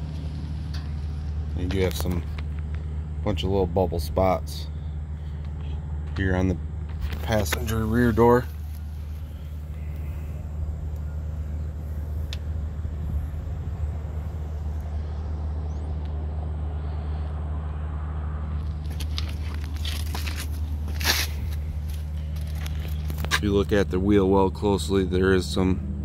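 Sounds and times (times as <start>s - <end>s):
truck engine idling: 0.0s - 26.0s
light scuffing taps: 18.8s - 23.5s.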